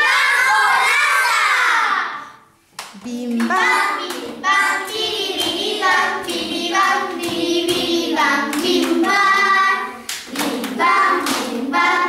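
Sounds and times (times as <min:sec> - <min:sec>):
children shouting together: 0:00.0 - 0:02.4
sharp hand clap: 0:02.7 - 0:09.3, 0:10.0 - 0:12.0.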